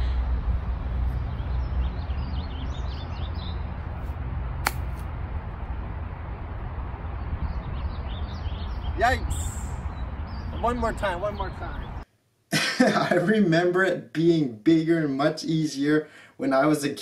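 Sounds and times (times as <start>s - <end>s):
steady low rumble: 0.0s - 12.0s
golf club striking ball: 4.6s - 5.1s.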